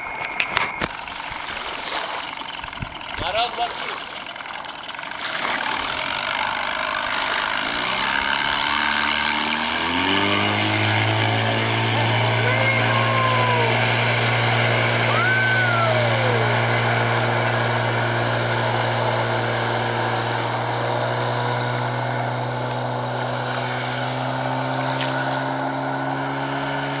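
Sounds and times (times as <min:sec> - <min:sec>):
outboard motorboat engine running: 0:00.0 - 0:27.0
water rushing: 0:00.8 - 0:27.0.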